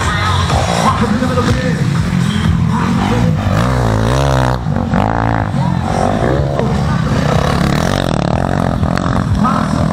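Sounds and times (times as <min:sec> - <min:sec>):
motocross bike engine revving: 0:00.8 - 0:09.9.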